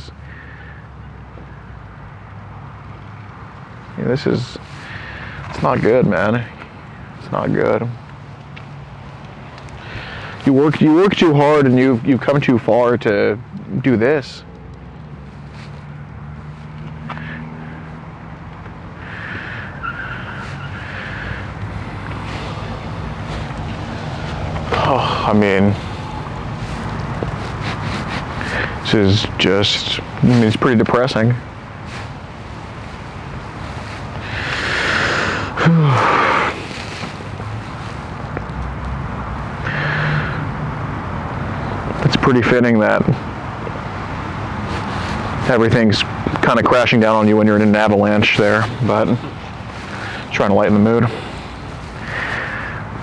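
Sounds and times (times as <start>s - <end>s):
man murmuring: 24.6s - 26.1s, 35.5s - 36.6s.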